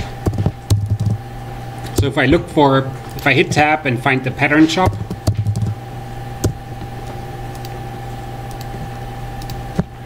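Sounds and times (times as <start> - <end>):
electrical hum: 0.0 - 10.0
keyboard and mouse clicks: 0.2 - 1.2, 4.8 - 5.8, 7.5 - 7.8, 8.5 - 8.7, 9.4 - 9.9.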